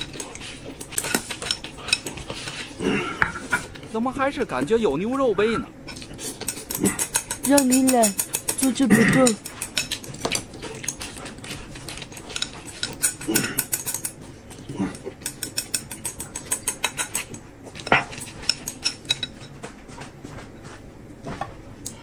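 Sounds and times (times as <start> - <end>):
person chewing: 5.9 - 18.8
chopsticks clicking on glass bowl: 6.4 - 10.1.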